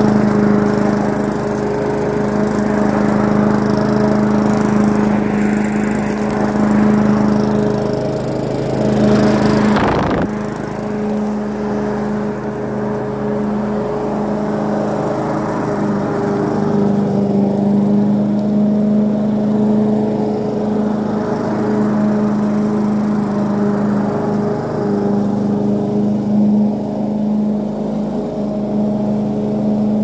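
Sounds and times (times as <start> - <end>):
lawn mower running: 0.0 - 30.0
loud burst of noise: 9.6 - 10.5.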